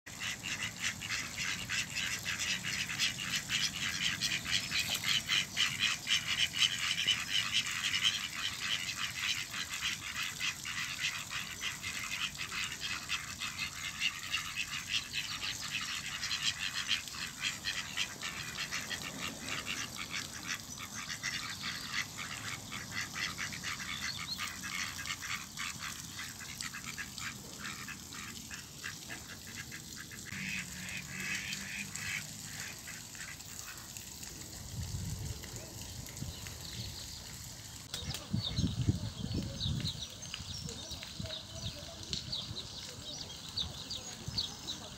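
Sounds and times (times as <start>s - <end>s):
ducks quacking: 0.1s - 34.0s.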